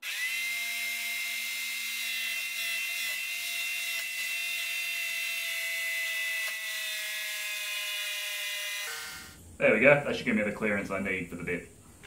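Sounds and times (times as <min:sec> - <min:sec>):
jigsaw cutting wood: 0:00.0 - 0:09.4.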